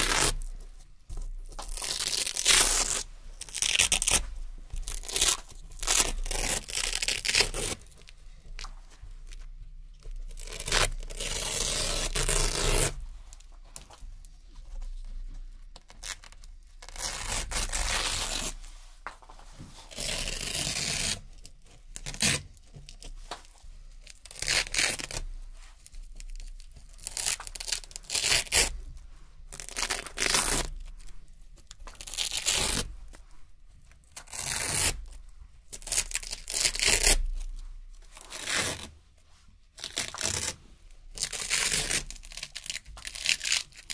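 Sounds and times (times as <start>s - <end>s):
velcro strips ripping: 0.0s - 0.5s, 1.5s - 8.0s, 10.3s - 13.0s, 15.8s - 18.6s, 19.9s - 21.3s, 22.0s - 23.1s, 24.0s - 25.3s, 26.3s - 28.8s, 29.5s - 31.0s, 31.8s - 33.2s, 34.1s - 37.5s, 38.2s - 39.0s, 39.8s - 43.9s.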